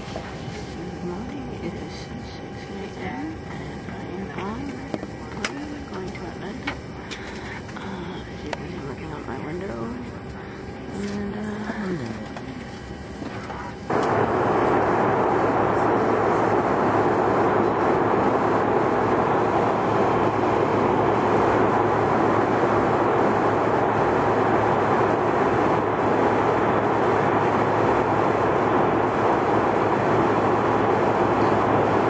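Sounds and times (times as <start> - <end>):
faint low hum: 0.0 - 32.0
jet engine and airflow rushing: 12.6 - 32.0.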